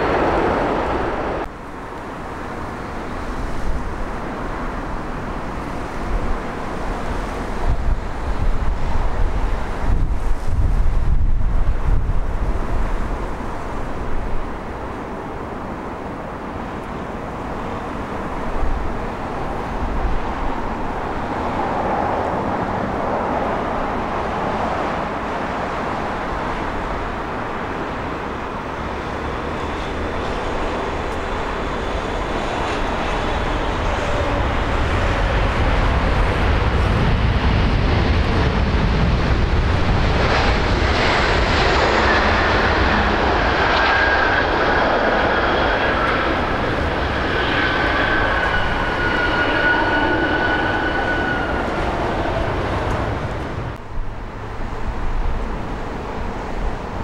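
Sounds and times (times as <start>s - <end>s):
jet engine noise: 0.0s - 57.0s
high engine whine: 25.0s - 57.0s.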